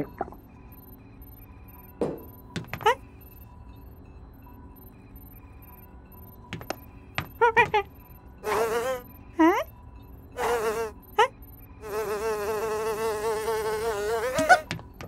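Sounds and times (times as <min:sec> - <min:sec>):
cartoon housefly buzzing: 0:06.6 - 0:09.1, 0:10.4 - 0:15.0.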